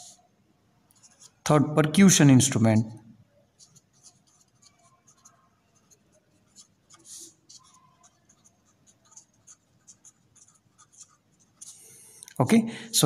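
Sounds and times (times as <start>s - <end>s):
pen scratching on paper: 1.0s - 1.4s, 3.5s - 12.1s.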